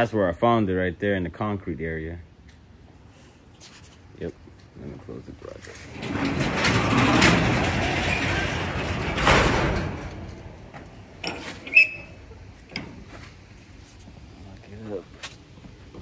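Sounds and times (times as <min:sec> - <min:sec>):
garage door closing: 0:05.5 - 0:13.4.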